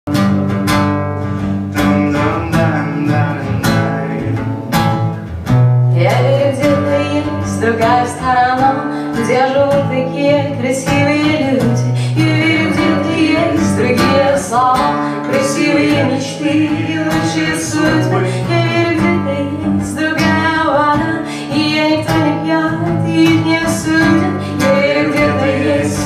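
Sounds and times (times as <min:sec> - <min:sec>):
acoustic guitar playing chords: 0:00.1 - 0:26.0
woman singing: 0:05.9 - 0:26.0.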